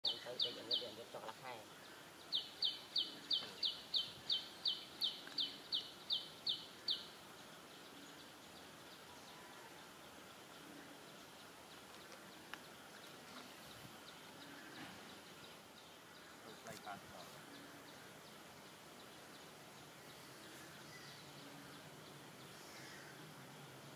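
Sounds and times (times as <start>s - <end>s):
soft ticks: 11.8s - 13.2s.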